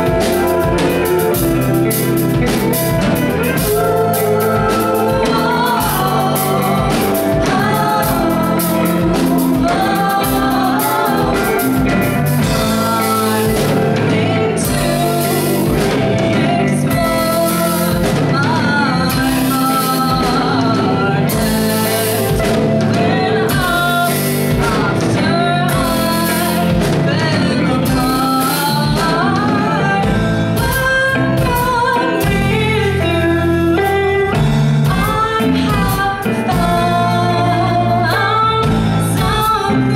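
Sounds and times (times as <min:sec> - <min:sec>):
bass guitar: 0:00.0 - 0:39.9
drums with steady beat: 0:00.0 - 0:39.9
electric guitar: 0:00.0 - 0:39.9
woman singing: 0:00.0 - 0:39.9.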